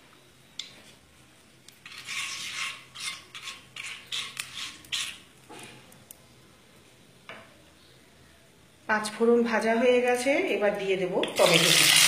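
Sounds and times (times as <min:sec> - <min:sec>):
spatula scraping a wok: 0:01.7 - 0:05.9
spices frying in oil: 0:11.1 - 0:12.0.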